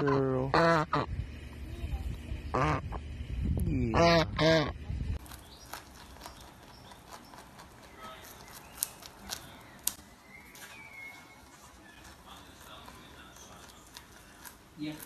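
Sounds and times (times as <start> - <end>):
rabbit crunching broccoli: 4.0 - 15.0.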